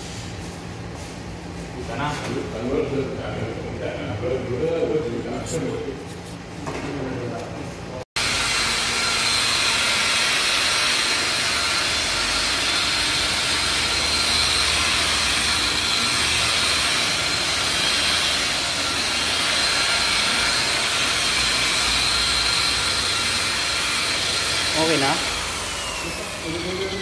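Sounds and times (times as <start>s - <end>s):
electric polisher whining: 8.2s - 27.0s.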